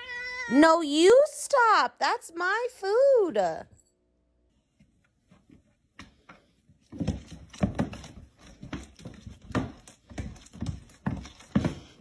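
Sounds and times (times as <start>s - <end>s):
cat paws thumping on wood floor: 6.0s - 12.0s.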